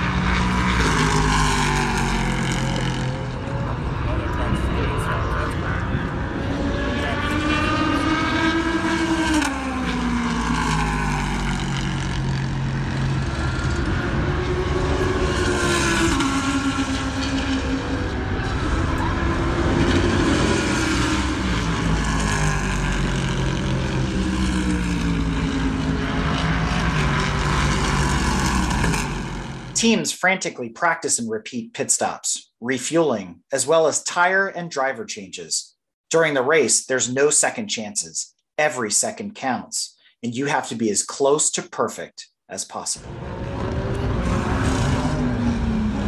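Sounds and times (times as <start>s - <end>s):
race car engines accelerating: 0.0s - 30.0s, 43.0s - 46.0s
steady engine rumble: 0.0s - 30.0s, 43.0s - 46.0s.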